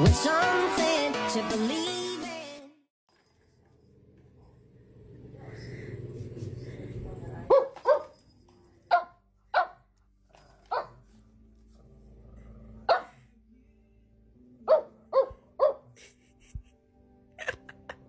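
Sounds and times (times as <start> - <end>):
small dog barking: 7.5 - 8.1, 8.9 - 9.8, 10.7 - 11.0, 12.9 - 13.2, 14.7 - 15.9.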